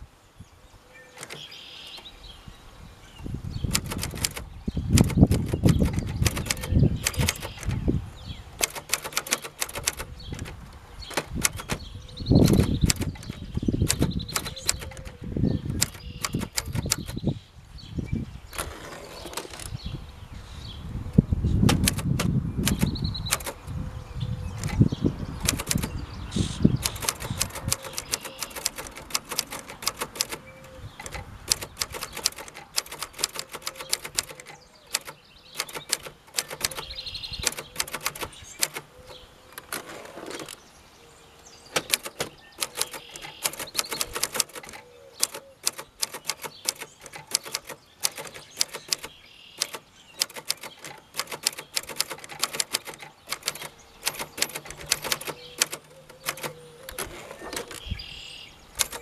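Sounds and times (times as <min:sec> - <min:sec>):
typewriter keys clacking: 0:01.2 - 0:01.5, 0:03.7 - 0:07.8, 0:08.6 - 0:11.8, 0:12.4 - 0:17.2, 0:21.7 - 0:23.7, 0:24.6 - 0:26.0, 0:26.8 - 0:40.6, 0:41.8 - 0:57.9, 0:58.8 - 0:59.0.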